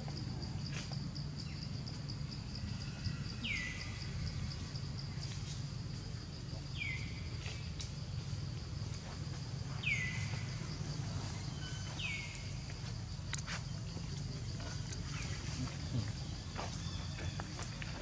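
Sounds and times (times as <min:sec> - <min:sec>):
high insect trill: 0:00.0 - 0:18.0.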